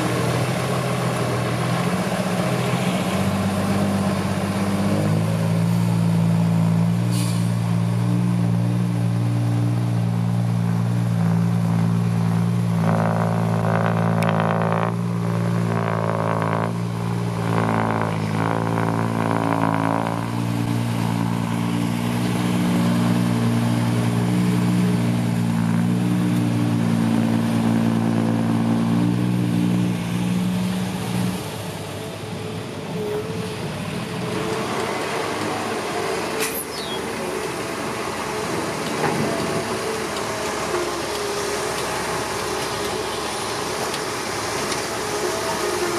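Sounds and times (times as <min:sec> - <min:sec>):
diesel engine running under load: 0:00.0 - 0:45.9
high tonal whine: 0:08.0 - 0:34.5.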